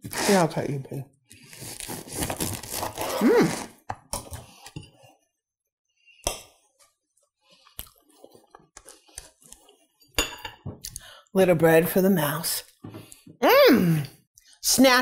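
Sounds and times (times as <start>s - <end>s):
bread knife sawing through loaf: 1.6s - 3.7s.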